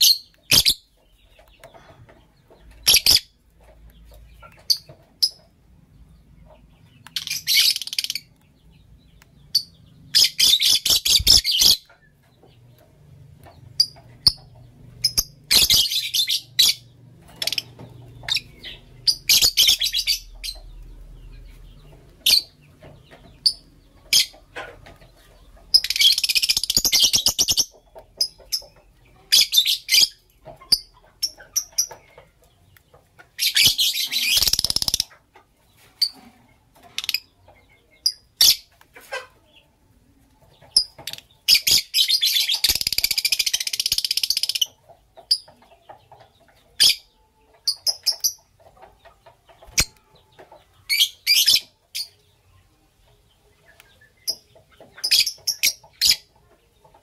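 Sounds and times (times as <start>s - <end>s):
lovebirds chirping: 0.0s - 57.0s.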